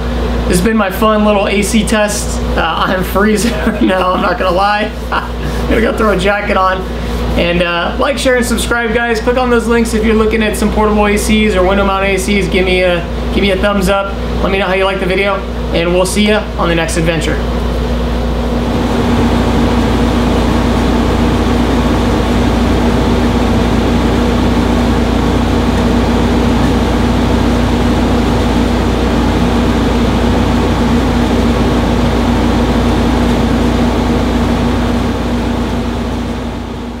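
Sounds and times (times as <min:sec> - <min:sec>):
air conditioner fan rushing: 0:00.0 - 0:37.0
low hum: 0:17.4 - 0:37.0.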